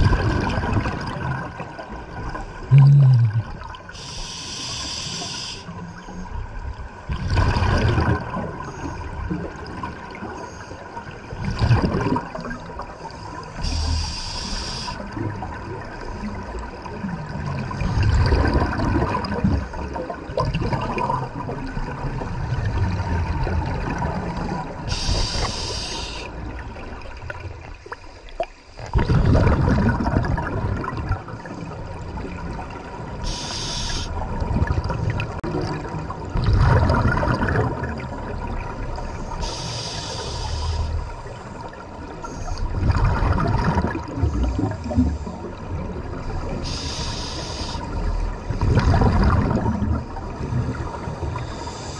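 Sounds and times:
underwater exhale bubbling: 0.0s - 6.0s, 7.1s - 32.4s, 33.1s - 51.9s
regulator hiss: 4.0s - 5.8s, 13.6s - 15.0s, 24.9s - 26.3s, 33.2s - 34.1s, 39.4s - 41.0s, 46.6s - 47.9s.

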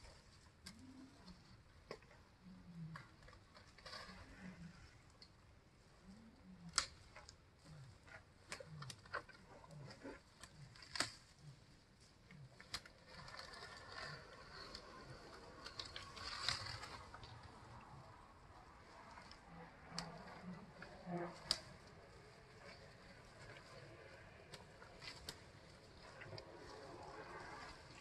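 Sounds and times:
leaves and branches rustling: 2.6s - 28.0s
branches snapping: 6.7s - 7.4s, 8.5s - 11.4s, 12.5s - 28.0s.

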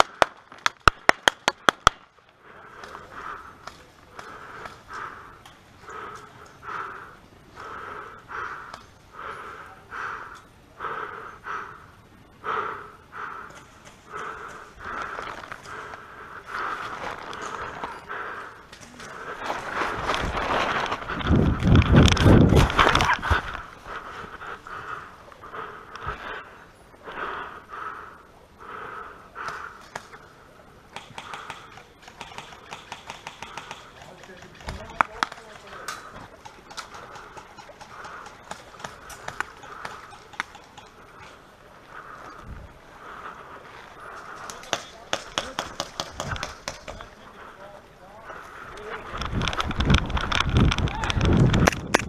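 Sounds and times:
person panting: 2.4s - 20.2s, 22.8s - 32.5s, 33.2s - 45.8s
heavy breathing: 2.4s - 50.5s.

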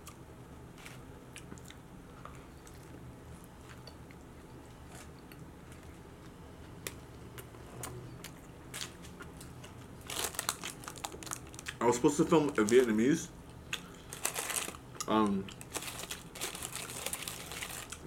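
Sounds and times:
low room hum: 0.0s - 18.0s
man chewing food: 0.8s - 10.0s.

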